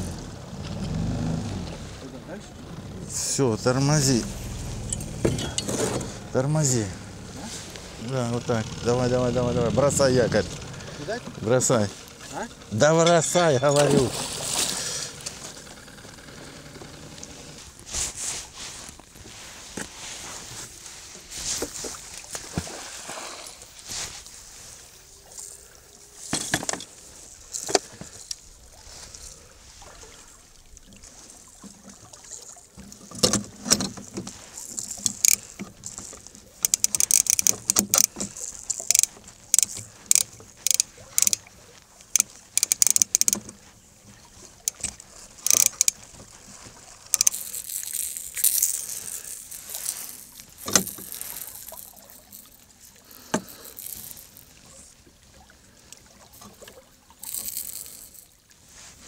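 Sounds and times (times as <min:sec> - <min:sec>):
spinning reel being worked: 0:34.3 - 0:41.4, 0:42.1 - 0:43.4, 0:45.4 - 0:46.0, 0:47.1 - 0:54.5, 0:57.2 - 0:58.3.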